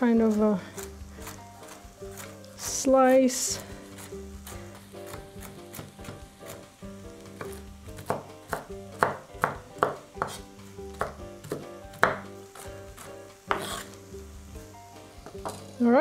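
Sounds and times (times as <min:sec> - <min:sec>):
knife chopping on wooden board: 0:05.0 - 0:06.6, 0:07.4 - 0:13.9.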